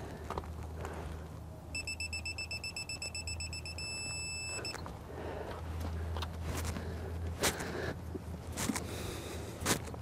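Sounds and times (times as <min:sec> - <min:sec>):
torque wrench beeping: 0:01.8 - 0:04.8.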